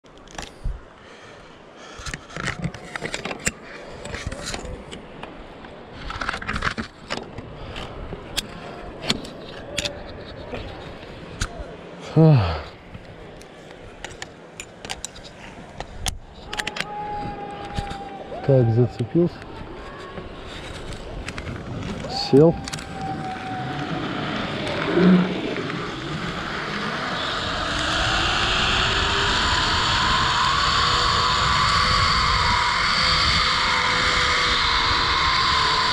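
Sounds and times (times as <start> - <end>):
rushing air: 15.2 - 35.9
zipline pulleys whirring on cable: 19.1 - 35.9.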